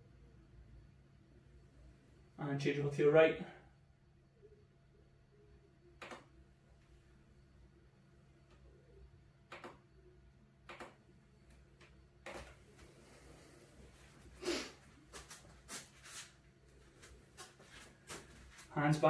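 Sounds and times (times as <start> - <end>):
low steady hum: 0.0 - 19.0
person moving on foam mats: 12.3 - 19.0.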